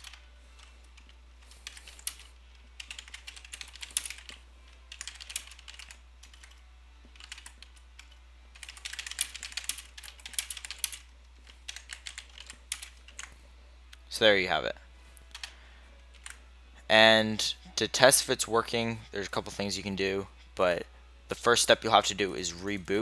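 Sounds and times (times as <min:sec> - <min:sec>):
typing on computer keyboard: 0:00.0 - 0:11.0, 0:11.7 - 0:13.3
steady low hum: 0:00.0 - 0:23.0.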